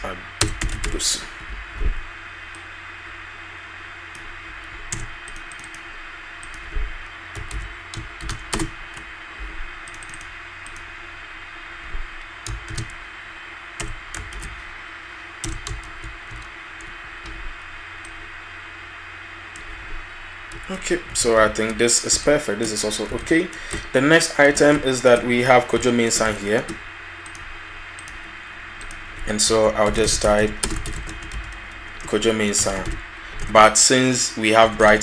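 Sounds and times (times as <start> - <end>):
steady background hiss: 0.0 - 35.0
keyboard typing: 0.4 - 1.0, 4.1 - 9.1, 9.8 - 10.9, 12.4 - 13.0, 13.8 - 14.7, 15.4 - 18.2, 20.5 - 28.2, 28.8 - 33.6.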